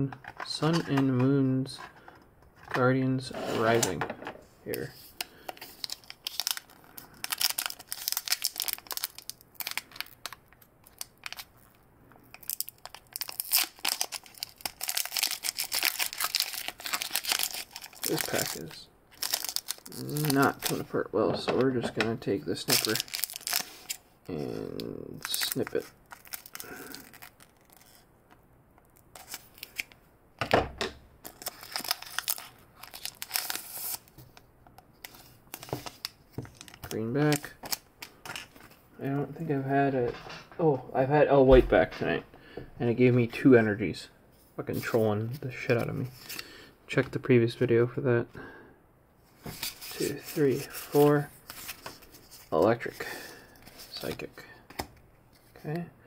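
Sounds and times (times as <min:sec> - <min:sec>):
foil wrapper crinkling: 0:04.8 - 0:20.8, 0:22.5 - 0:28.0, 0:31.2 - 0:34.2.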